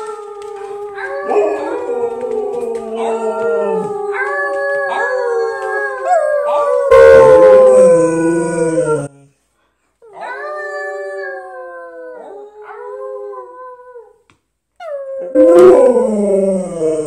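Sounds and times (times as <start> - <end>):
husky howling: 0.0 - 9.1, 15.1 - 17.0
people howling: 0.0 - 9.1.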